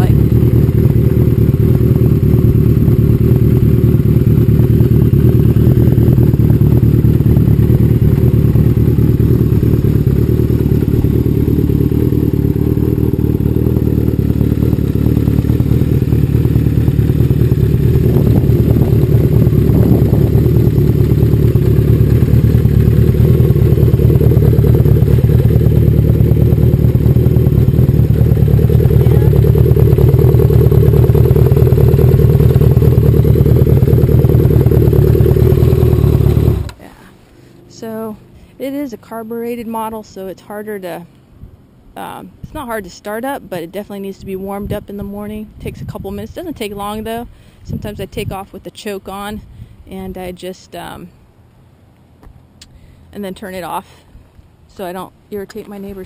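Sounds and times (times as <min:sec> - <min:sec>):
loud motorcycle engine idling: 0:00.0 - 0:38.3.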